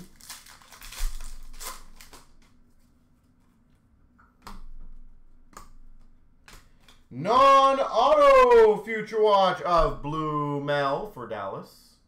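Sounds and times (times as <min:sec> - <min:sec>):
trading cards rustling: 0:00.0 - 0:03.6.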